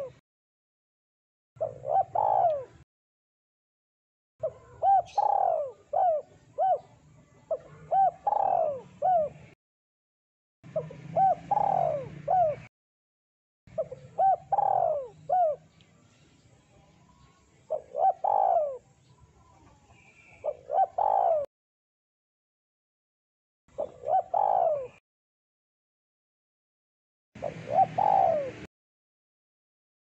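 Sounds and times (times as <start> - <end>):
dove cooing: 0.0 - 0.2, 1.6 - 2.8, 4.4 - 9.6, 10.7 - 12.7, 13.7 - 15.7, 17.7 - 18.9, 19.6 - 21.5, 23.7 - 25.0, 27.4 - 28.7.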